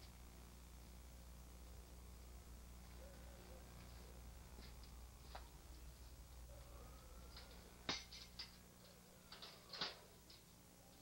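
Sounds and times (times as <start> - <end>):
faint electrical hum: 0.0 - 11.0.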